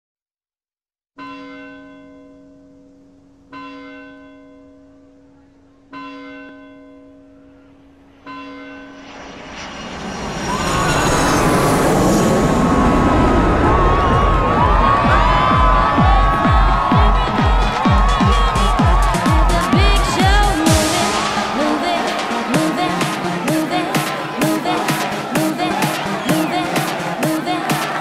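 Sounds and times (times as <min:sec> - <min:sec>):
church bell tolling: 0:01.2 - 0:09.0
noise with high whistling tones: 0:08.8 - 0:15.0.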